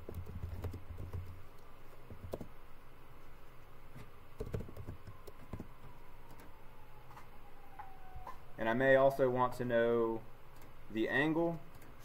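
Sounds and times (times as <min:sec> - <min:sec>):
typing on computer keyboard: 0:04.4 - 0:05.7.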